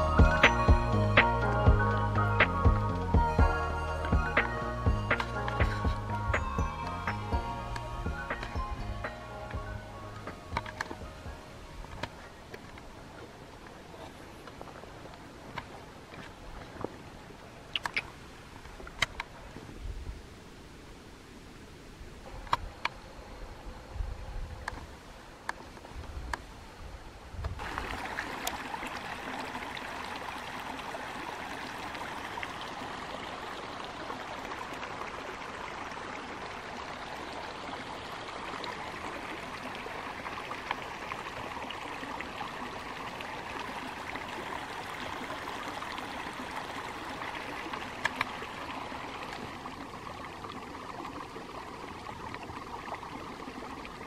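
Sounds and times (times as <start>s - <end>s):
flowing water: 0.0s - 54.0s
faint ticks: 48.0s - 48.4s.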